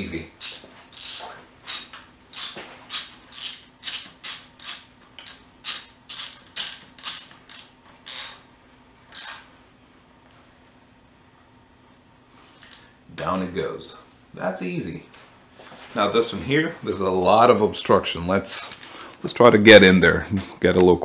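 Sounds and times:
ratchet wrench clicking: 0:00.4 - 0:08.4.

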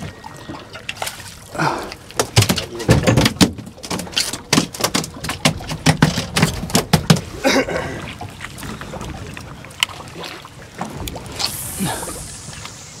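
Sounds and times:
water washing: 0:00.0 - 0:13.0
wind: 0:00.0 - 0:13.0
fish flopping on deck: 0:01.0 - 0:07.4.

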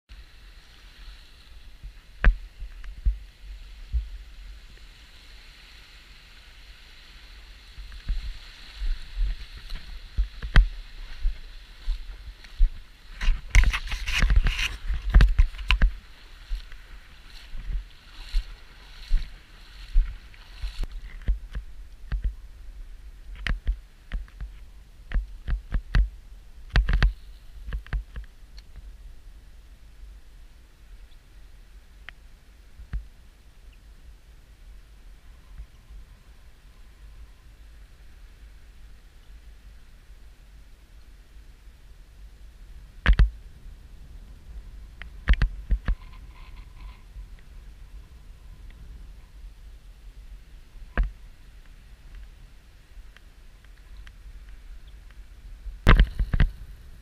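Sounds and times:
wind on microphone: 0:00.1 - 0:33.4, 0:34.1 - 0:57.0
steady hiss: 0:00.1 - 0:57.0.

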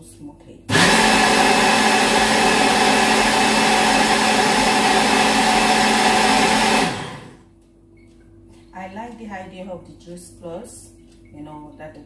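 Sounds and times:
blender whirring: 0:00.7 - 0:07.5.

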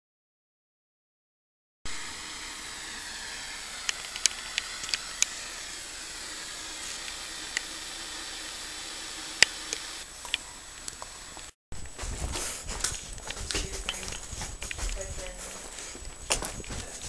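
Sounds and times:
television static hiss: 0:01.9 - 0:17.0
loud click: 0:03.8 - 0:05.4
sharp crackles: 0:09.4 - 0:17.0.

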